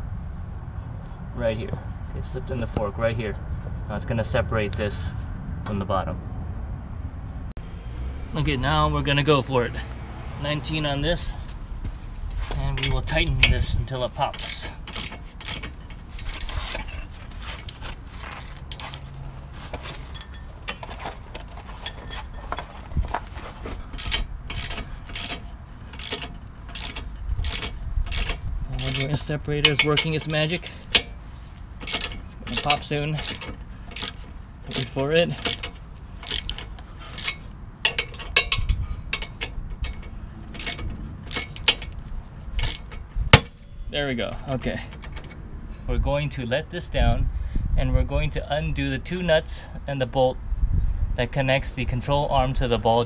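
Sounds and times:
ratchet wrench clicking: 14.3 - 16.5, 24.0 - 31.2, 31.8 - 42.0, 42.6 - 43.6.

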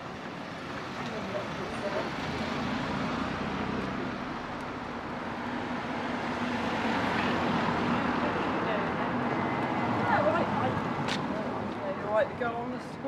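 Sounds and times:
street noise: 0.0 - 13.0.

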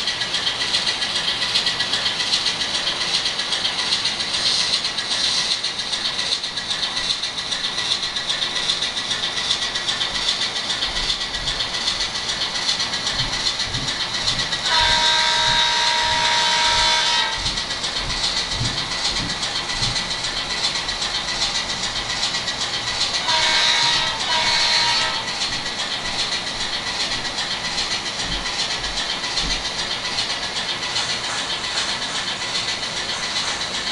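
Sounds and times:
model train diesel engine sound: 0.0 - 33.9
wheels clicking on track: 0.0 - 33.9
model train horn: 14.6 - 17.4, 23.2 - 25.3.

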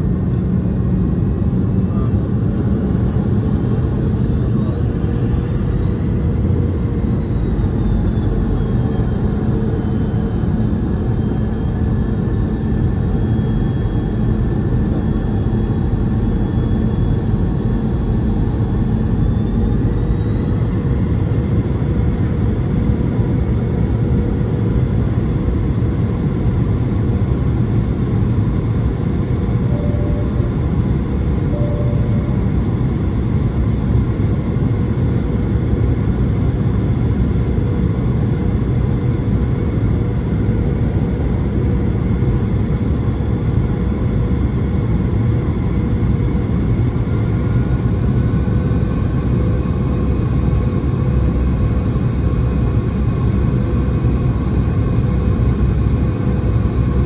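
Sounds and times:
jet engine hum: 0.0 - 57.0
faint whine: 1.0 - 44.8
steady tone: 29.4 - 33.7.

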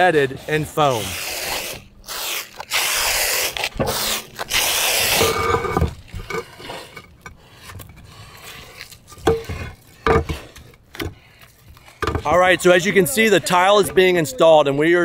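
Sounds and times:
roof tiles scraping: 0.0 - 14.5
foam adhesive gun hissing: 0.8 - 5.8.

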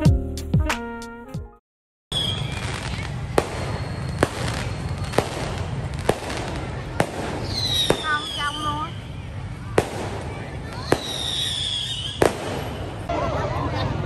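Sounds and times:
fireworks popping: 2.1 - 13.1
outdoor background rush: 2.1 - 14.0.

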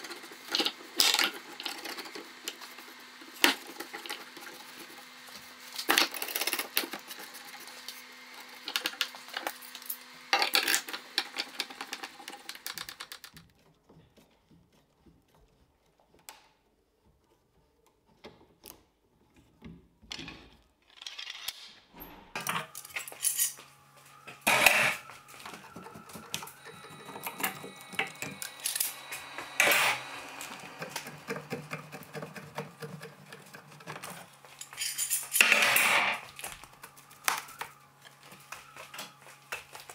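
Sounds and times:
metal clamps clinking and clicking: 34.6 - 35.7.

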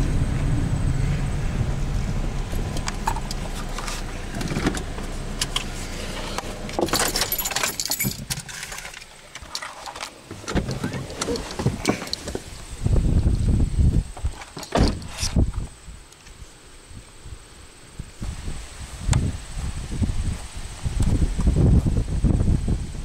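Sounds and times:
low rumble inside a car: 0.0 - 8.5
handling knocks and rustles: 2.8 - 12.6
keys jangling: 6.8 - 10.1.

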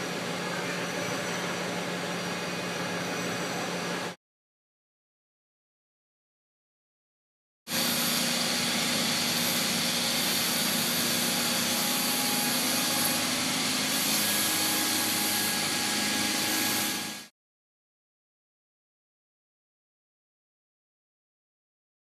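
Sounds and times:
machine hissing: 7.7 - 17.3.

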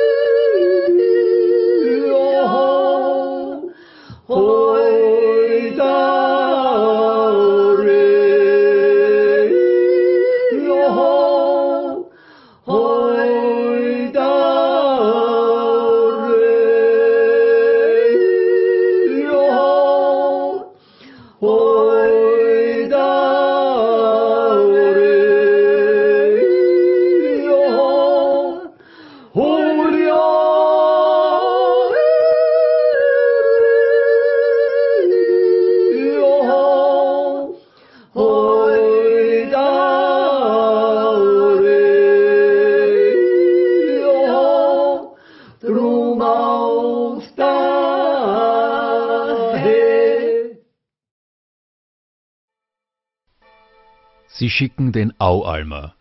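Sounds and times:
two voices yodeling in harmony: 0.0 - 3.7, 29.4 - 37.6.

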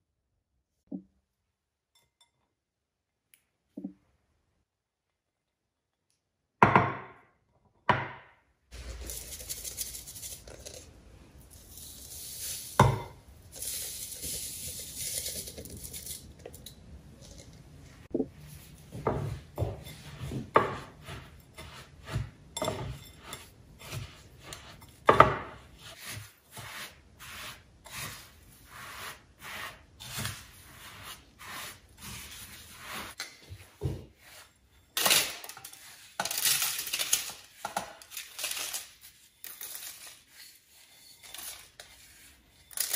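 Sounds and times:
scraping and rubbing: 8.7 - 42.9.

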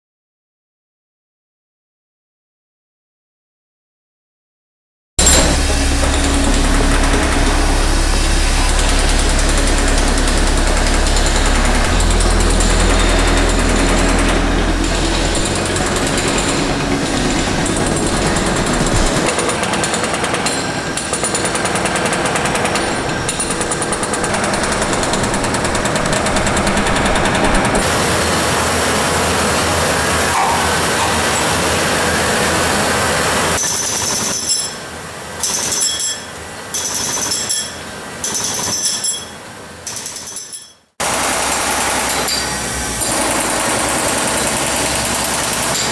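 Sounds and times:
low machine hum: 5.2 - 33.6
high ringing tone: 5.2 - 40.9
jackhammer chipping concrete: 5.2 - 45.9.

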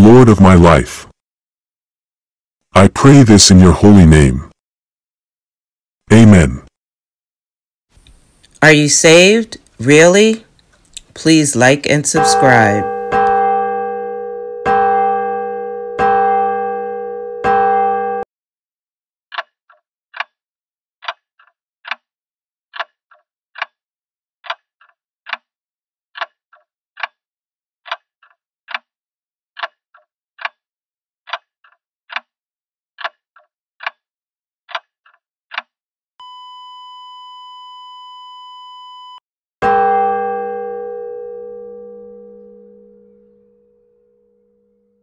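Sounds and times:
clock ticking: 12.0 - 13.5
steady high beep: 12.1 - 18.2.

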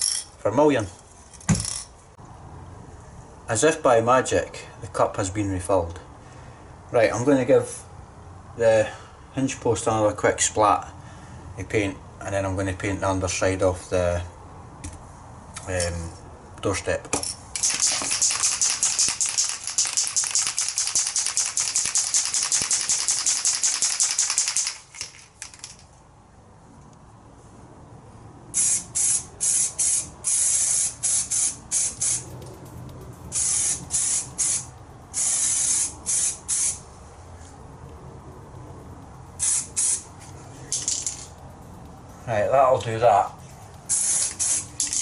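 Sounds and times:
spray paint hissing: 17.5 - 25.8, 28.5 - 37.6, 39.0 - 42.3, 43.3 - 45.0
spray can ball rattling: 17.5 - 26.0, 28.6 - 36.8, 39.4 - 42.2, 43.4 - 45.0.

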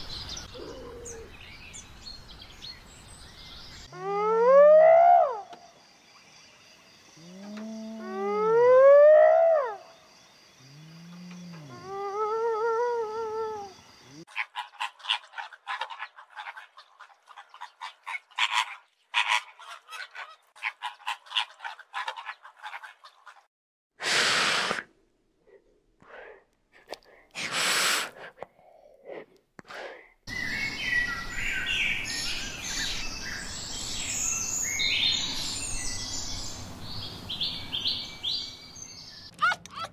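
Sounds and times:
short loud hiss: 24.0 - 24.9.

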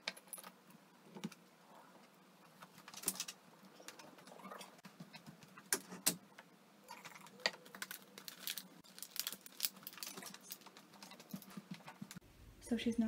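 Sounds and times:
plastic bottles knocking and crinkling: 7.1 - 12.2.

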